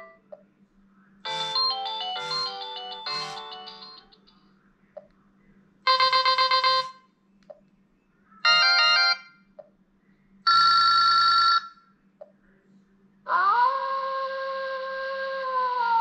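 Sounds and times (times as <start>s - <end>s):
phone alert tones: 1.3s - 4.2s.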